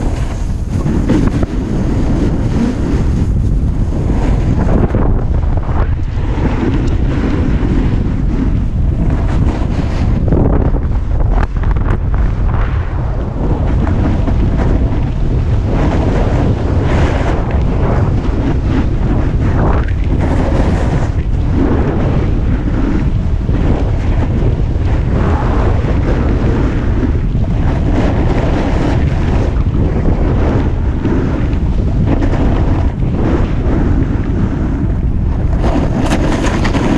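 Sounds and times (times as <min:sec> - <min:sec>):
snowboard edges scraping snow: 0:00.0 - 0:12.6
wind buffeting the microphone: 0:00.0 - 0:36.9.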